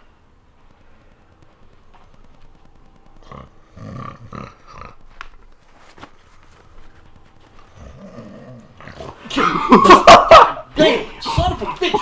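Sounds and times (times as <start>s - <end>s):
soft clicks: 0.6s - 3.2s.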